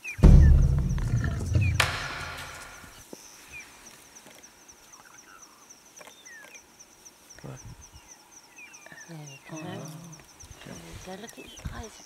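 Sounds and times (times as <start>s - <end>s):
faint bird notes: 0.0s - 3.7s
insect chirping: 0.0s - 12.0s.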